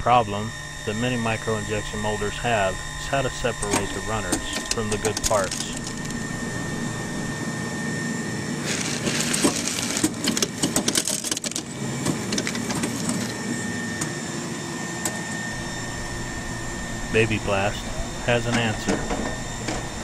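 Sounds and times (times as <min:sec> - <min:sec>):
machine hum: 0:00.0 - 0:20.0
plastic parts rustling and clicking: 0:08.6 - 0:11.6.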